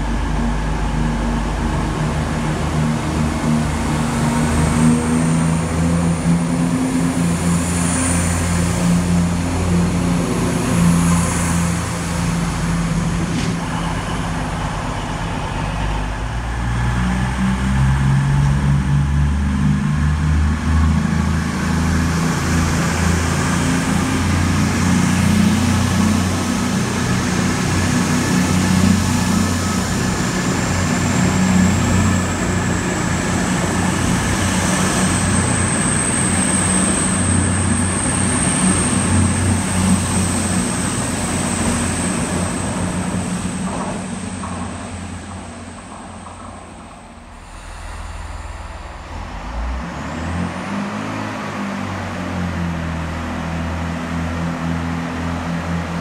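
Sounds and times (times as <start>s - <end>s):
diesel train engine drone: 0.0s - 56.0s
faint high whine: 10.8s - 18.4s, 45.0s - 52.1s.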